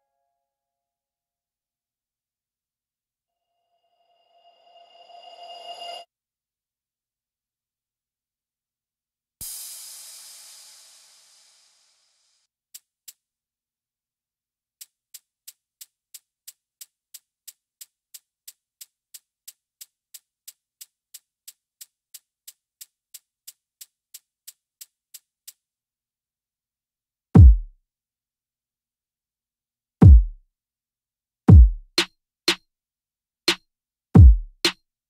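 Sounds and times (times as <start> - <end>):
shaker ticks: 12.7 - 13.2, 14.8 - 25.6.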